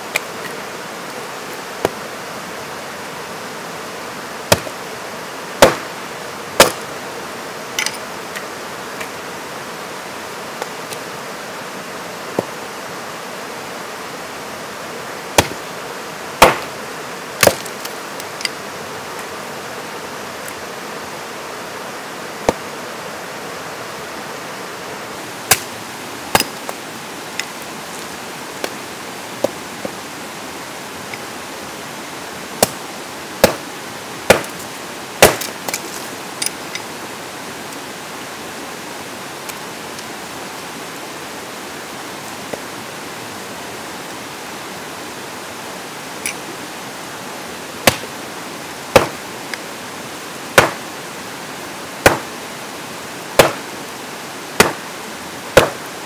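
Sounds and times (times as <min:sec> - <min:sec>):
creek rapids rushing: 0:00.0 - 0:56.0
axe chopping wood: 0:04.5 - 0:04.7, 0:05.6 - 0:05.9, 0:06.6 - 0:06.8, 0:15.4 - 0:15.6, 0:16.4 - 0:16.7, 0:17.4 - 0:17.7, 0:25.5 - 0:25.7, 0:26.3 - 0:26.6, 0:32.6 - 0:32.8, 0:33.4 - 0:33.6, 0:34.3 - 0:34.6, 0:35.2 - 0:35.5, 0:47.8 - 0:48.1, 0:48.9 - 0:49.2, 0:50.6 - 0:50.8, 0:52.0 - 0:52.3, 0:53.4 - 0:53.6, 0:54.6 - 0:54.8, 0:55.6 - 0:55.8.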